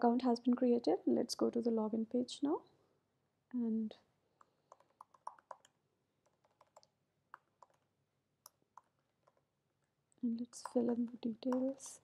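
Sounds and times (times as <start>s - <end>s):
faint keyboard typing: 4.4s - 12.0s.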